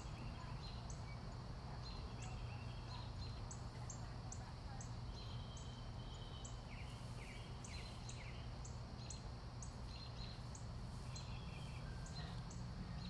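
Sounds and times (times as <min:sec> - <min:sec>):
birds chirping: 0:00.0 - 0:13.0
low steady hum: 0:00.0 - 0:13.0
sweeping bird calls: 0:04.8 - 0:13.0.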